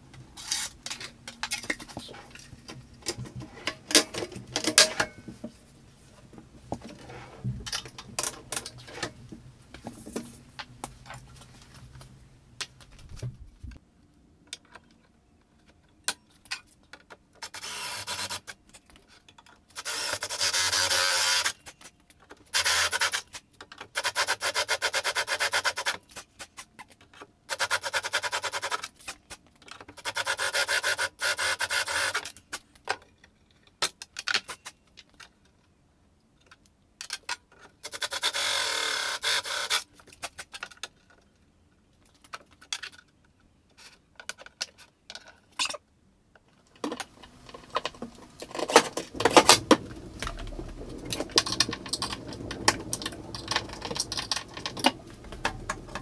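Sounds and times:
cordless drill boring into wood: 0:17.6 - 0:18.4.

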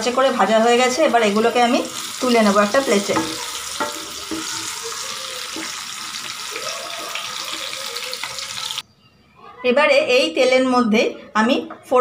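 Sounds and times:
vegetables sizzling in hot oil: 0:00.0 - 0:08.8
wooden spatula knocking on pan: 0:03.0 - 0:04.7.

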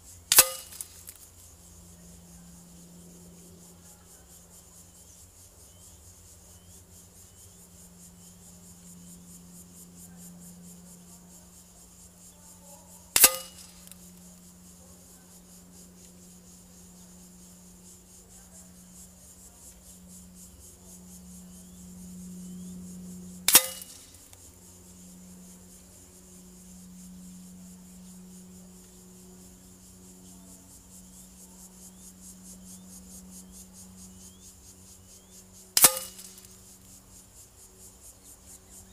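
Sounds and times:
faint steady hum: 0:00.0 - 0:38.9
air rifle shots: 0:00.3 - 0:00.8, 0:13.2 - 0:14.0, 0:23.5 - 0:24.1, 0:35.8 - 0:36.4.

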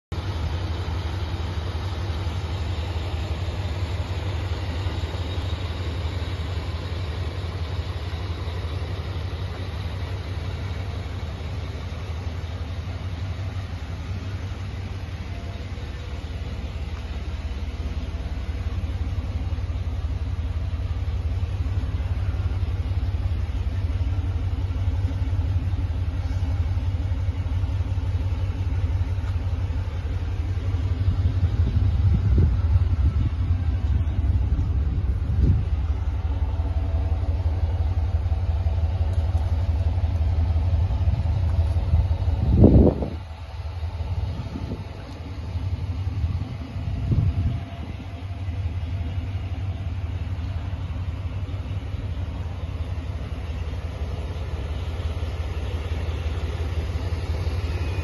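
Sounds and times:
van engine idling: 0:00.0 - 0:58.0.

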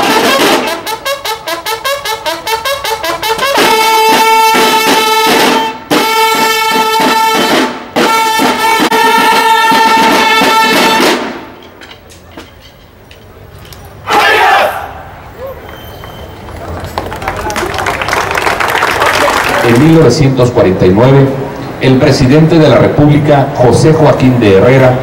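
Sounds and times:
snare drums beating: 0:00.0 - 0:01.3, 0:02.6 - 0:11.5
bugles holding long notes: 0:00.0 - 0:11.6, 0:13.4 - 0:17.1.

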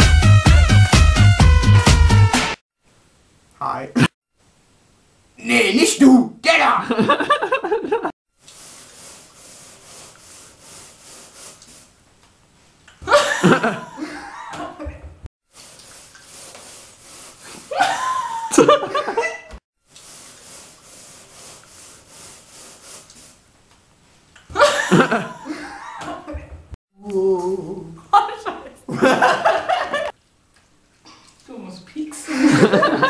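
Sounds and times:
women laughing loudly: 0:06.9 - 0:08.1, 0:13.1 - 0:15.0, 0:17.7 - 0:19.6, 0:24.5 - 0:26.5, 0:28.9 - 0:30.1, 0:32.2 - 0:33.0.

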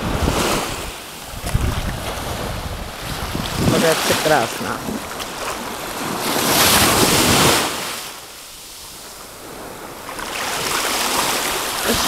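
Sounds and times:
wind buffeting microphone: 0:00.0 - 0:07.8
small waves washing ashore: 0:00.0 - 0:12.0.

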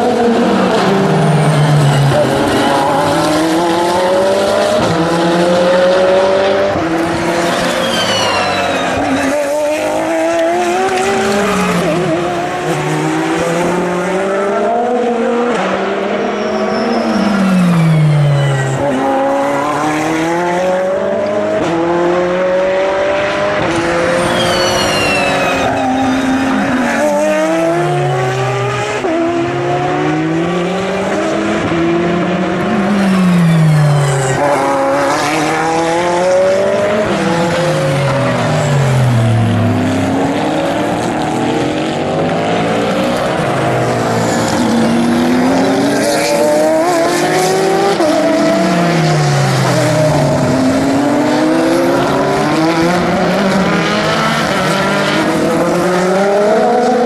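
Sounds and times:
race cars passing: 0:00.0 - 0:57.0.

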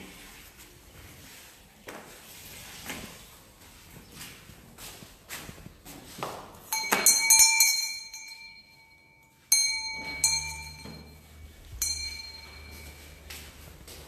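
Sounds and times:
bell-like chime: 0:06.7 - 0:13.3.

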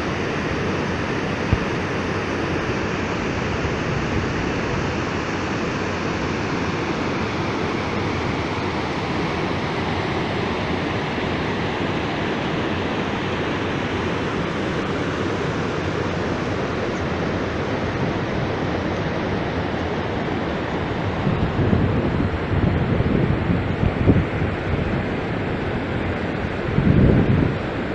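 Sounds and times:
wind buffeting microphone: 0:16.0 - 0:27.9.

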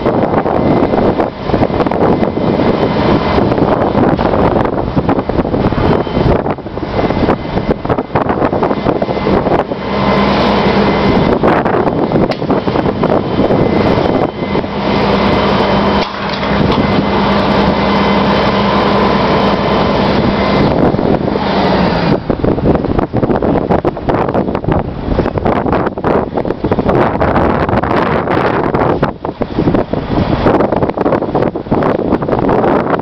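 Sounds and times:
hydraulic whine: 0:00.0 - 0:33.0
truck engine running: 0:00.0 - 0:33.0
wind buffeting microphone: 0:00.0 - 0:33.0.

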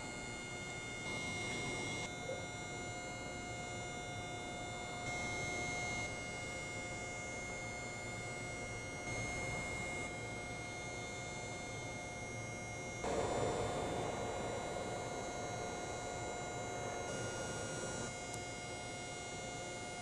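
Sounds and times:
electrical hum: 0:07.5 - 0:20.0
high whining tones: 0:11.7 - 0:20.0.

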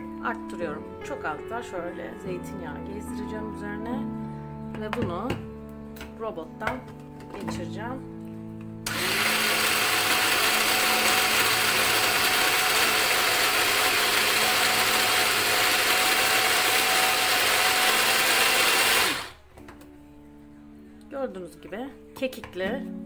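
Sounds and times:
electric mini chopper whirring: 0:08.9 - 0:19.4.

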